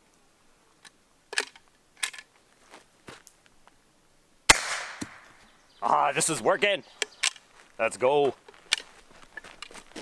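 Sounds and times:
rifle shot: 0:04.5 - 0:05.3.

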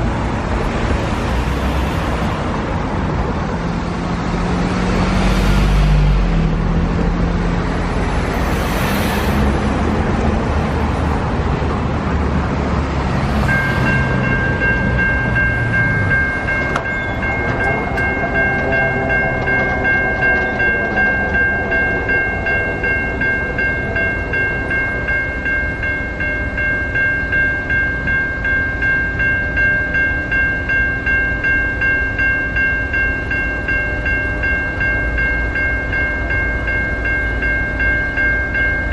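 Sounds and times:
vehicles driving past: 0:00.0 - 0:28.2
crossing warning bell ringing: 0:04.2 - 0:38.9.

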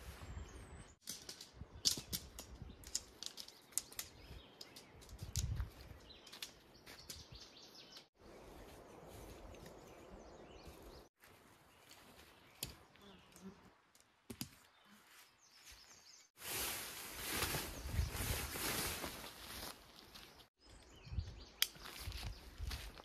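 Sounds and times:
tent poles clicking and snapping: 0:01.0 - 0:05.6, 0:06.2 - 0:07.3, 0:21.6 - 0:22.3
tent fabric rustling and flapping: 0:16.3 - 0:20.2.

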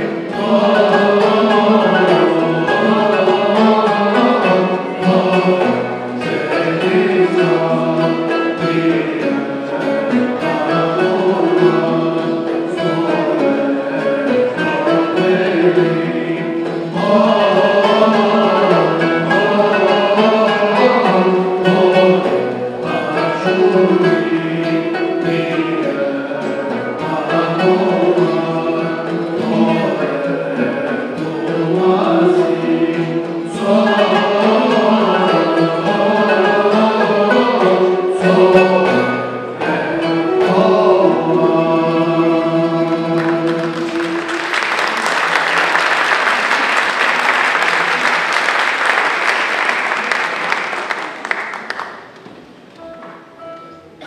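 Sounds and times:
choir singing a hymn: 0:00.0 - 0:46.6
traditional instruments playing: 0:00.0 - 0:54.0
audience applause: 0:43.2 - 0:52.5.

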